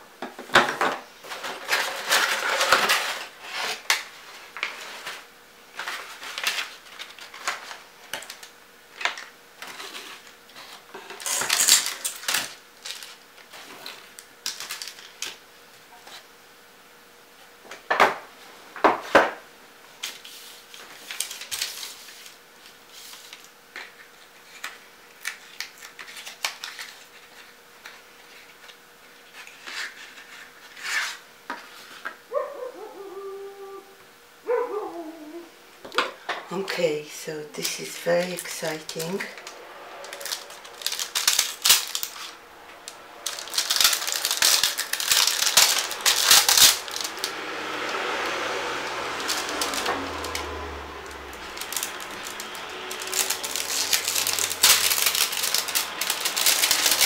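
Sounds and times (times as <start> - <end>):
faint steady hum: 0.0 - 57.0
paper and cardboard rustling: 0.5 - 15.2, 20.0 - 32.2, 37.6 - 47.4, 51.2 - 57.0.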